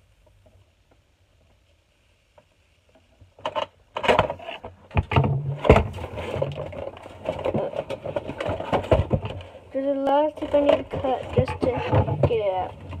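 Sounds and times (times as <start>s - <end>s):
cardboard and plastic packaging crackling: 3.6s - 13.0s.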